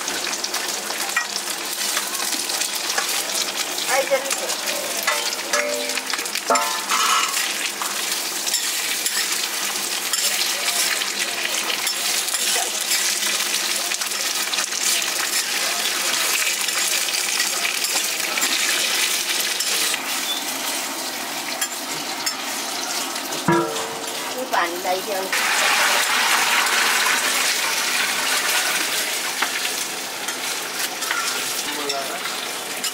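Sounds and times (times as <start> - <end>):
food sizzling in a pan: 0.0 - 32.9
utensil clinking against pan: 5.1 - 7.5, 23.5 - 24.4, 31.0 - 32.0.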